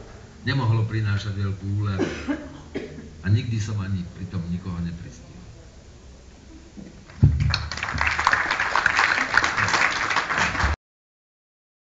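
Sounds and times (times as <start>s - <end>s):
audience applauding: 7.1s - 10.8s.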